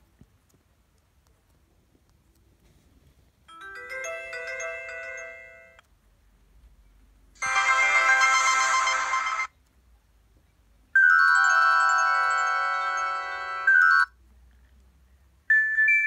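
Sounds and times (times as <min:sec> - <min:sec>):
bell-like alert tones: 0:03.5 - 0:05.8, 0:07.4 - 0:09.5
bright alert tones: 0:07.4 - 0:09.5.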